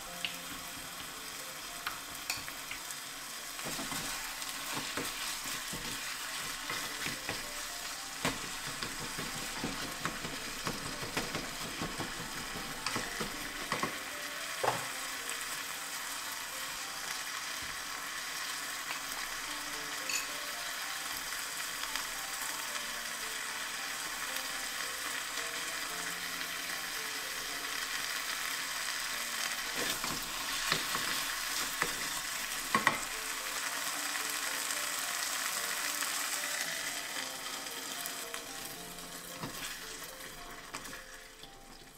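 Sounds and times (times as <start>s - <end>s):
food sizzling in a pot: 0.0s - 41.9s
wooden spatula knocking on pot: 8.2s - 14.0s.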